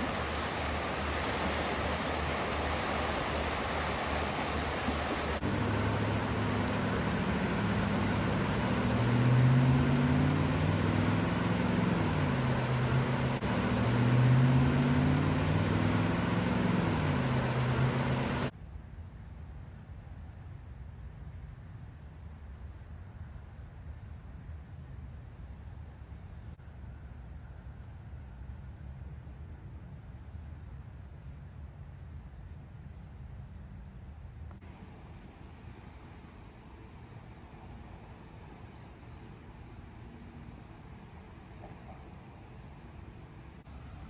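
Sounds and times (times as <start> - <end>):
floodwater rushing over rocks: 0.0 - 18.5
insects trilling: 0.0 - 34.6.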